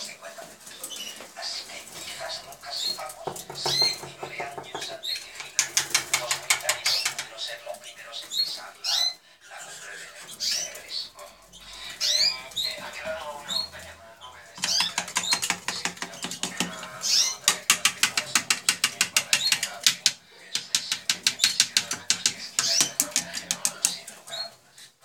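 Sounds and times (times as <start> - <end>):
canary singing: 0.0 - 25.0.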